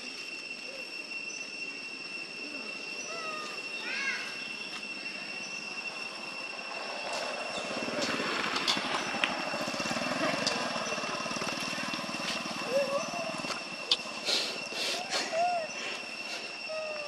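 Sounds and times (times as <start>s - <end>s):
steady high whine: 0.0s - 17.0s
rapid sucking noise: 13.5s - 16.7s.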